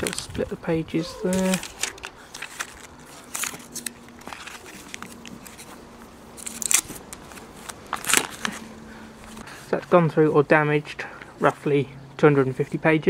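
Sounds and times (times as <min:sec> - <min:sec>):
paper rustling and crinkling: 0:00.9 - 0:09.4.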